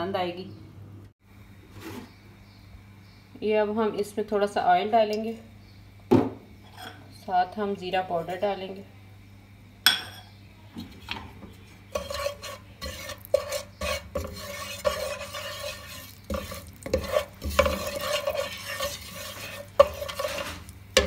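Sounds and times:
wooden spatula scraping a pan: 0:10.8 - 0:21.0
oil sizzling: 0:11.9 - 0:21.0.

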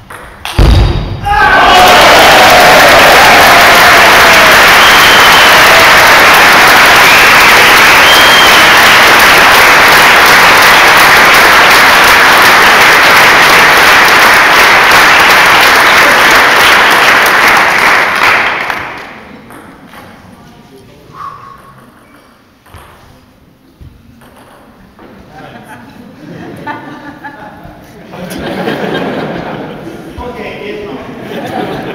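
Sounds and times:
audience applauding: 0:01.5 - 0:19.2.

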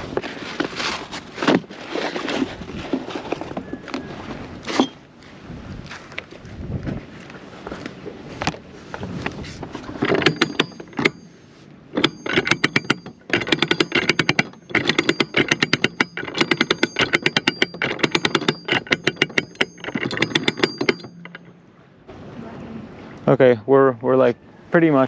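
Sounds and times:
anchor windlass clicking: 0:07.8 - 0:11.3, 0:11.9 - 0:21.6
faint metallic ringing: 0:10.1 - 0:22.7.

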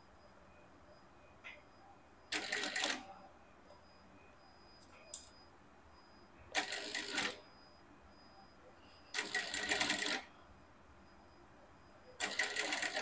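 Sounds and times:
industrial sewing machine stitching: 0:12.2 - 0:13.0.

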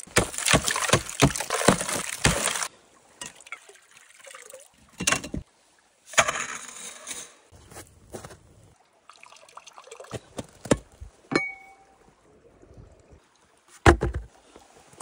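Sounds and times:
axe chopping ice: 0:00.0 - 0:02.7
water sloshing and splashing: 0:00.0 - 0:06.5.

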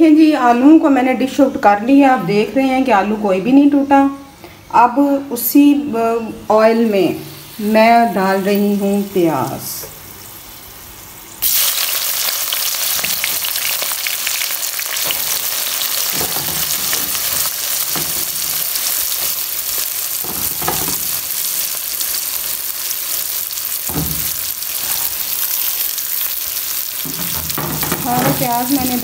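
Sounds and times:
onions sizzling in hot oil: 0:06.5 - 0:29.0.

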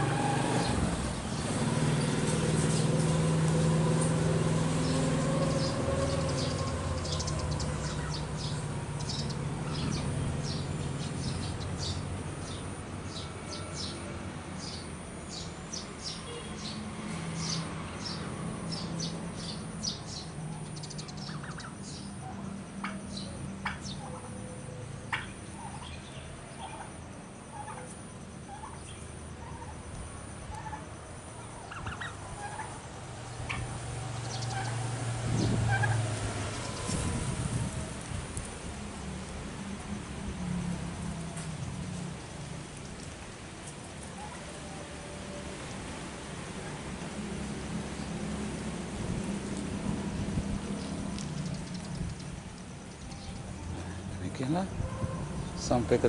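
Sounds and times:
turkeys chirping: 0:04.8 - 0:12.6, 0:18.8 - 0:24.4, 0:25.0 - 0:29.8, 0:30.5 - 0:34.8, 0:35.7 - 0:36.0, 0:42.8 - 0:44.8, 0:50.7 - 0:54.0
turkeys clucking: 0:21.1 - 0:21.8, 0:22.8 - 0:24.4, 0:25.1 - 0:29.8, 0:30.5 - 0:30.8, 0:31.6 - 0:34.8, 0:35.7 - 0:36.1.

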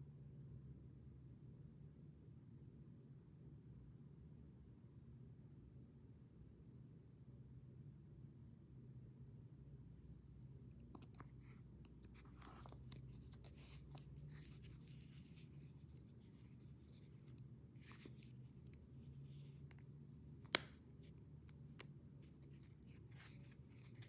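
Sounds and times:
soft handling rustle: 0:10.3 - 0:24.0.

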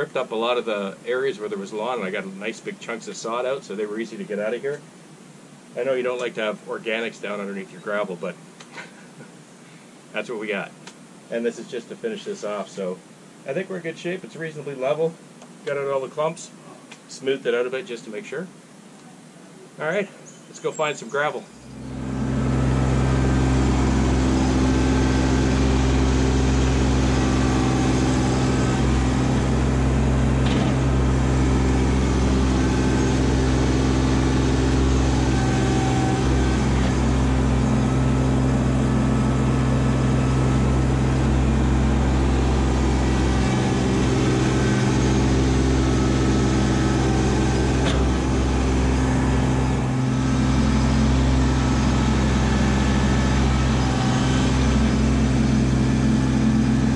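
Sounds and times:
tractor diesel engine running: 0:21.7 - 0:56.9.

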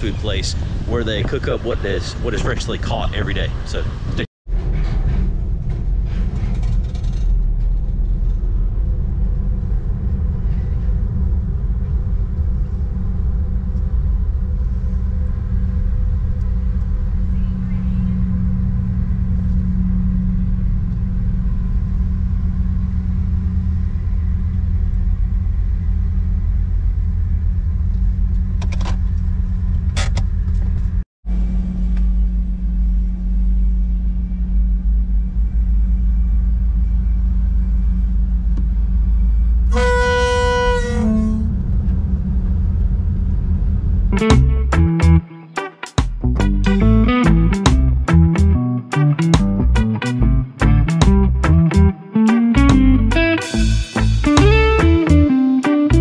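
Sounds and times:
low engine rumble: 0:00.0 - 0:45.4, 0:46.0 - 0:56.0
horn blast: 0:39.7 - 0:41.9, 0:44.2 - 0:56.0.

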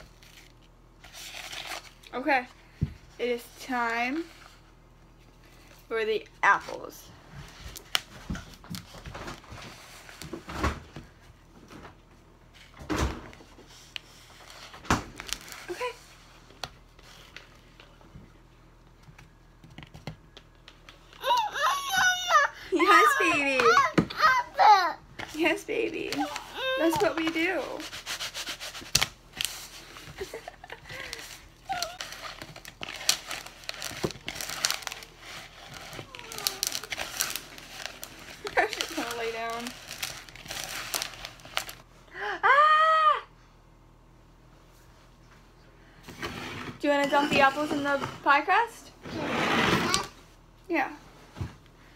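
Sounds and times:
apple slices rustling in plastic bowl: 0:25.2 - 0:41.8.

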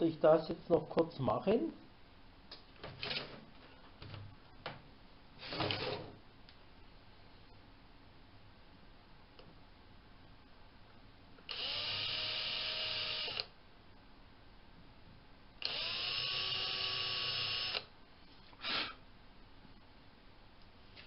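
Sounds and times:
cordless drill drilling into wood: 0:11.5 - 0:13.5, 0:15.6 - 0:17.9.

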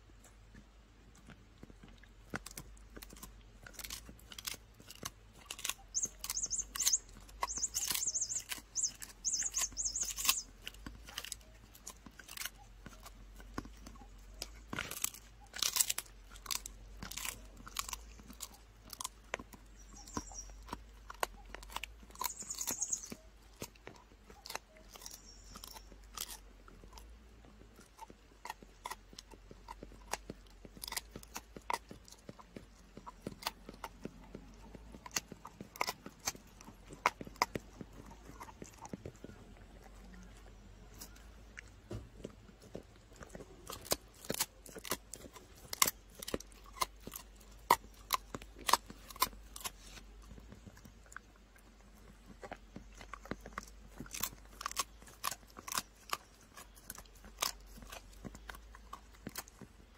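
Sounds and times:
dog chewing and crunching: 0:00.0 - 0:59.9.

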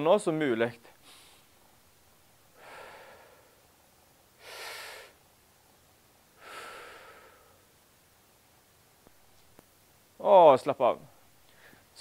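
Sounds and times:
person breathing deeply: 0:02.5 - 0:03.7, 0:04.4 - 0:05.2, 0:06.4 - 0:07.7.

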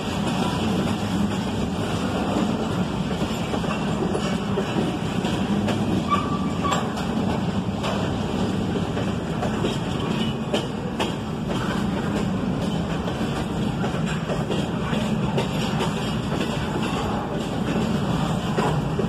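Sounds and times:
train wheels rumbling on rails: 0:00.0 - 0:19.0
wheel squeal: 0:06.0 - 0:07.0.

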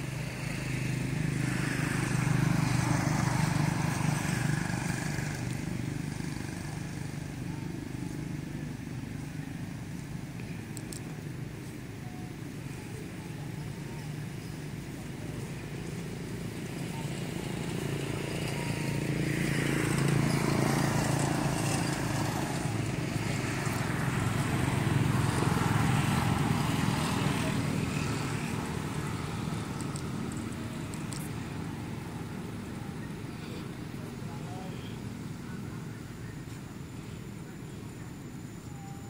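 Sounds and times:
motor vehicle passing by: 0:00.0 - 0:09.4, 0:14.4 - 0:37.0.

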